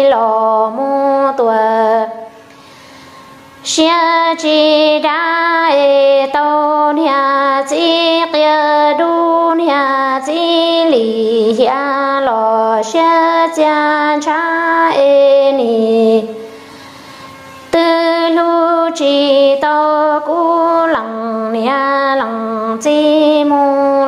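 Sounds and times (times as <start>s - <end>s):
woman singing solo: 17.7s - 24.0s.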